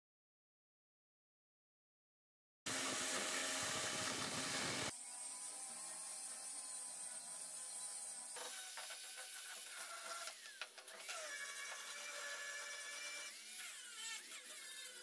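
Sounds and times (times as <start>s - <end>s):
angle grinder sanding wood: 2.7s - 15.0s.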